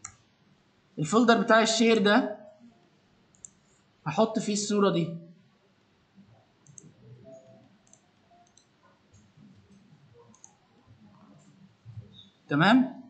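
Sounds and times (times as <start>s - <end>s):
faint computer mouse clicks: 3.3s - 3.6s, 6.6s - 11.5s.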